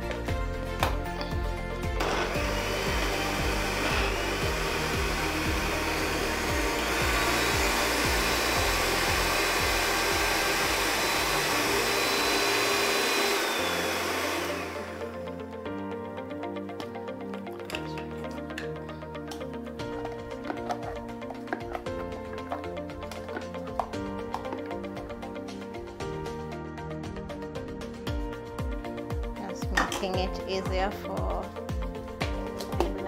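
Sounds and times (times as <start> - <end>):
electric blender running: 1.9 - 15.3.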